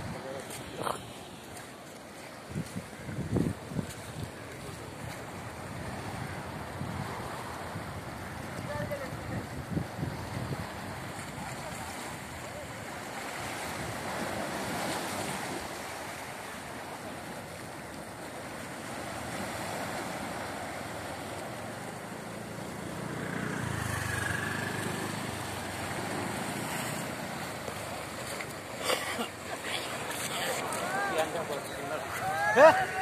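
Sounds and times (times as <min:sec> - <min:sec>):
surf breaking on beach: 0:00.0 - 0:33.0
wind rumbling on microphone: 0:02.3 - 0:12.7.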